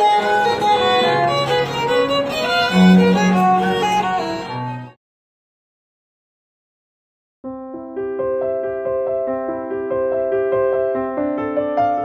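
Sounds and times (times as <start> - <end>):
solo piano music: 7.4 - 12.0.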